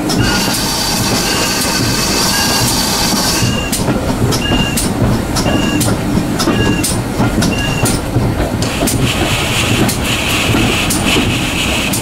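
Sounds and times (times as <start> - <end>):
rail clicks with high ring: 0.0 - 8.1
train rumble: 0.0 - 12.0.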